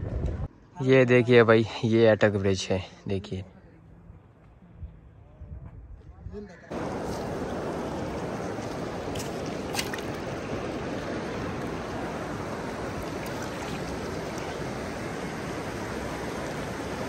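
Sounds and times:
river water rushing: 6.7 - 17.0.

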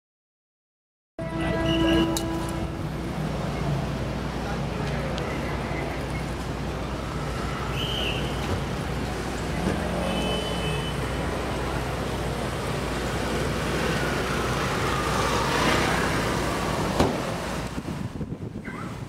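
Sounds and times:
low traffic rumble: 1.2 - 19.0
motor scooters driving past: 11.2 - 17.6.

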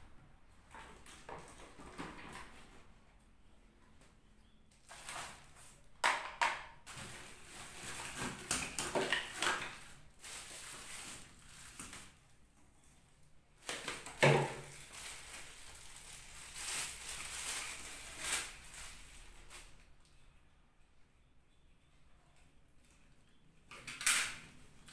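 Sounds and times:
plastic wrapping crinkling: 4.8 - 5.9, 6.8 - 12.3, 13.6 - 20.0.

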